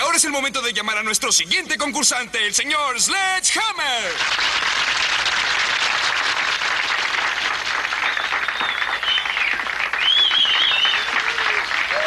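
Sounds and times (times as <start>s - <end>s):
audience applauding: 4.0s - 12.0s
high wavering cheers: 10.0s - 12.0s.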